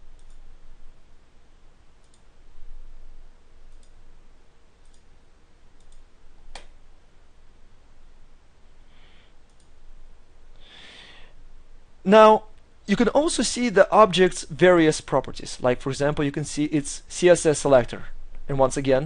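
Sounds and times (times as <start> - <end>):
faint steady hum: 0.0 - 19.0
computer mouse clicks: 0.1 - 0.4, 2.0 - 2.3, 3.7 - 4.0, 4.8 - 5.1, 5.8 - 6.7, 9.4 - 9.8.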